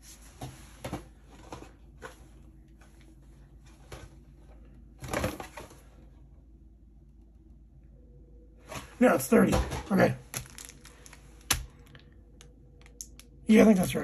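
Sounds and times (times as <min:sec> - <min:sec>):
foil wrappers crinkling: 0:10.3 - 0:12.1.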